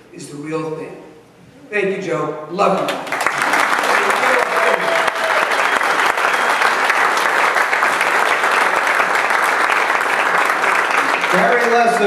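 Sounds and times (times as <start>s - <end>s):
audience applauding: 2.9s - 12.0s.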